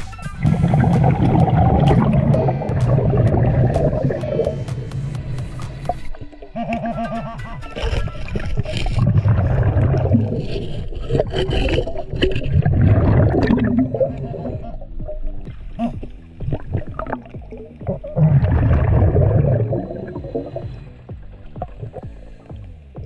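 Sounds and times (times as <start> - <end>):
underwater exhaled bubbles: 0.4 - 22.7
diver breathing through regulator: 0.5 - 12.9, 19.4 - 23.0.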